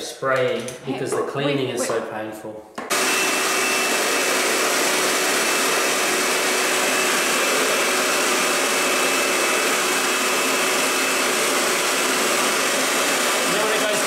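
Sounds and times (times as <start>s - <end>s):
paint sprayer motor running: 2.9s - 14.0s.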